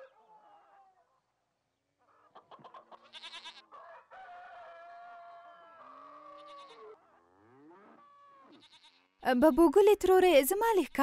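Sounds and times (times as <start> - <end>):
chickens clucking rapidly: 2.1 - 4.0
rooster crowing: 2.5 - 8.8.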